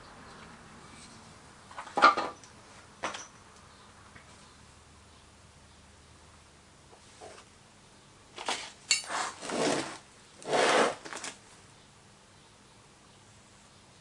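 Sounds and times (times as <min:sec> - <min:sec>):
metal tool scraping sand: 0:08.4 - 0:11.1.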